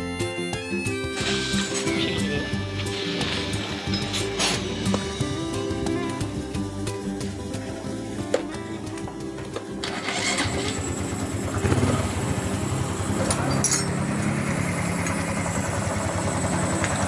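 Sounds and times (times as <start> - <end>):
motorcycle engine starting and idling: 9.5 - 17.0.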